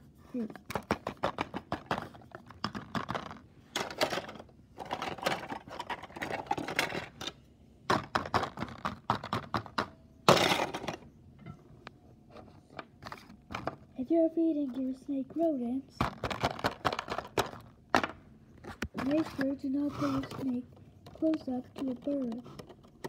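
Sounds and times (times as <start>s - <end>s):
plastic toy figures clicking: 20.1s - 23.0s.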